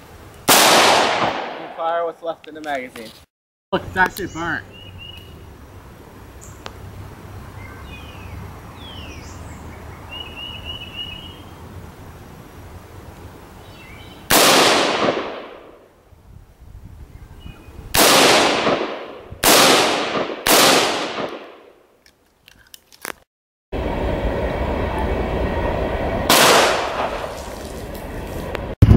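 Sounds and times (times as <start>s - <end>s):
rifle shots: 0.5s - 1.8s, 14.3s - 15.6s, 18.0s - 21.6s, 26.3s - 27.3s.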